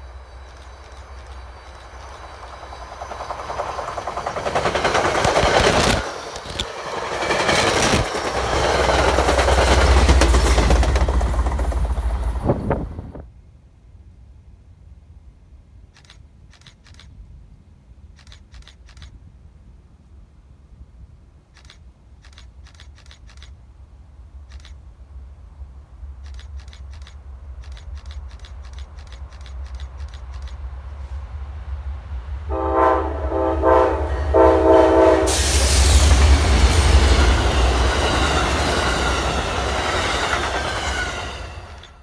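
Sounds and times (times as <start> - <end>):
train rumble: 0.0 - 42.0
train wheel and rail noise: 0.0 - 42.0
train horn blasts: 32.5 - 36.0.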